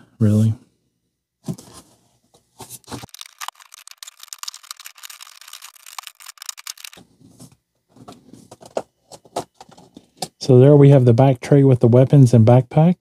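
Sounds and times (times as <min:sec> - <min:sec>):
plastic packaging crackling: 0:02.8 - 0:07.0.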